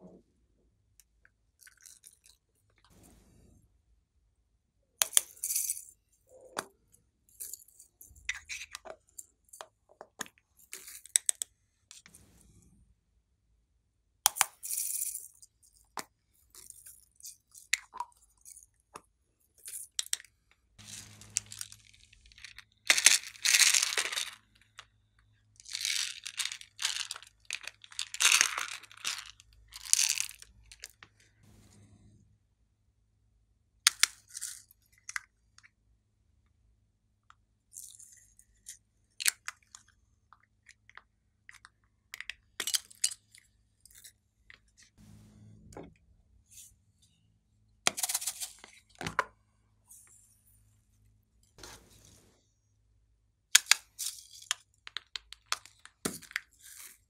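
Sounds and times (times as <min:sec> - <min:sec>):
plastic toys clicking and tapping: 0:53.6 - 0:57.0.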